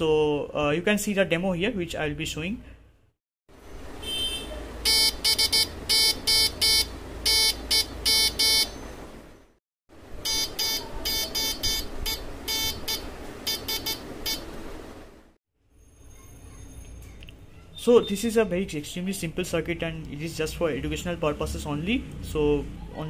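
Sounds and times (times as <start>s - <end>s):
morse code beeps: 4.8s - 8.8s, 10.2s - 14.5s.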